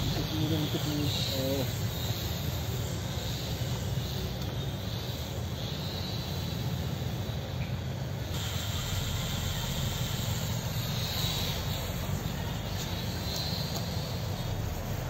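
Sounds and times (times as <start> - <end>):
rc helicopter motor whine: 0.0 - 15.0
steady low rumble: 8.0 - 15.0.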